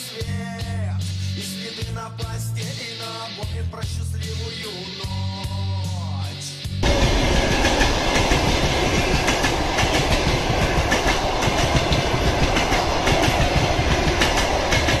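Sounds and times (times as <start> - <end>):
train rolling past: 6.8 - 15.0
wheels clickety-clack on rail joints: 6.8 - 15.0.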